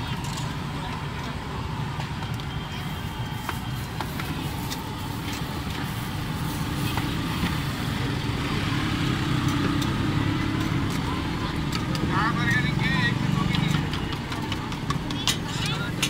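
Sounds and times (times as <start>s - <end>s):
traffic rumble: 0.0s - 16.0s
clicks and taps at a griddle: 9.3s - 16.0s.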